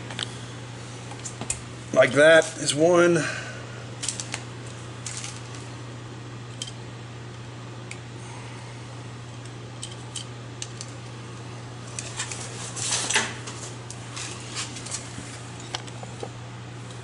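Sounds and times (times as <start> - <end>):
steady low hum: 0.0 - 17.0
wires clicking and rustling: 4.0 - 5.7, 6.5 - 6.8, 9.3 - 17.0.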